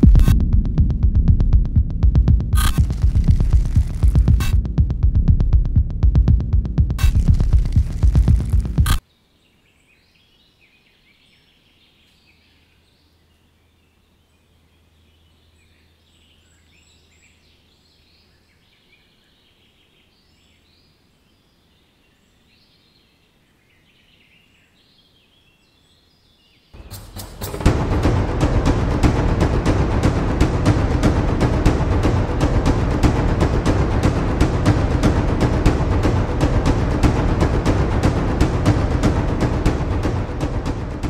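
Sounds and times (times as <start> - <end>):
music: 0.0 - 9.0, 26.8 - 41.0
small birds chirping: 7.1 - 27.4.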